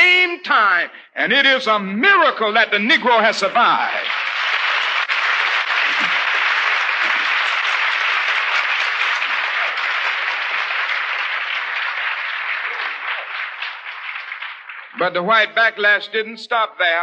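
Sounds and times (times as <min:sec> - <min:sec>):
audience applauding: 0:02.9 - 0:15.9.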